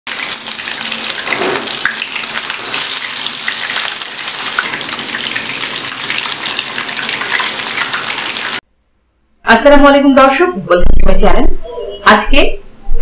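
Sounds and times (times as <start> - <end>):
meat sizzling in hot oil: 0.1 - 8.6.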